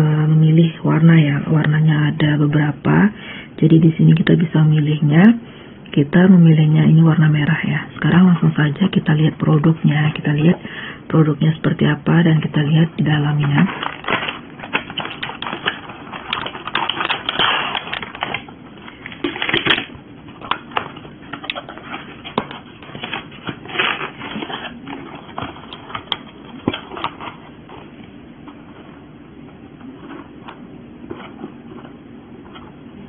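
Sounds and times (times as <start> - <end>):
cardboard flaps rustling and scraping: 20.7 - 32.9.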